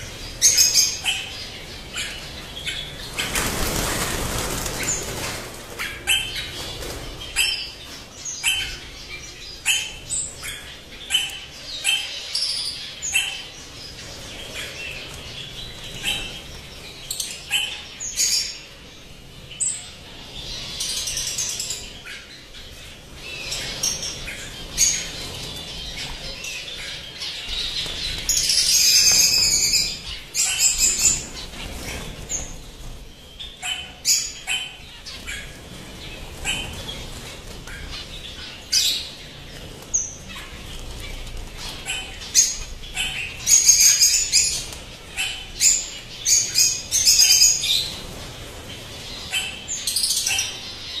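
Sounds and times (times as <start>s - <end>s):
birds chirping and calling: 0.0s - 51.0s
wings fluttering: 3.0s - 7.3s.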